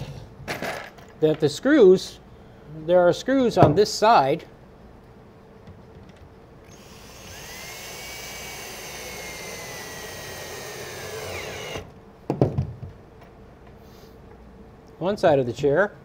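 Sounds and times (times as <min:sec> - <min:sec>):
cordless drill driving a screw: 0:06.7 - 0:11.9.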